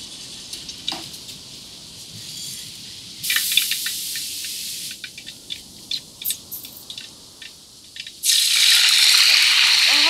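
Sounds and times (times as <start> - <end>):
seeds sizzling in hot oil: 3.2 - 5.0, 7.8 - 10.0.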